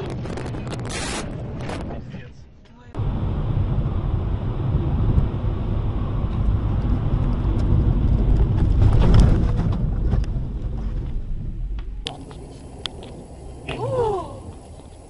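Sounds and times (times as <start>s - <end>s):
tyre and wind rumble: 0.0s - 15.0s
car crash rattling and knocks: 7.8s - 11.5s.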